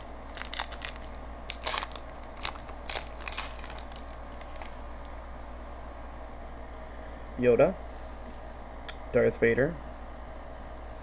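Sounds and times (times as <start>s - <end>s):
wrapper crinkling and tearing: 0.0s - 5.2s.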